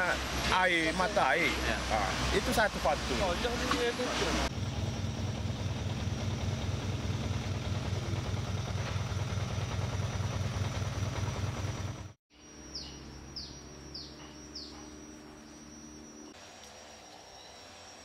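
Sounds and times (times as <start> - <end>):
vehicle engine rumble: 0.0 - 16.6
faint high whine: 11.6 - 18.0
bird chirping: 12.3 - 16.3.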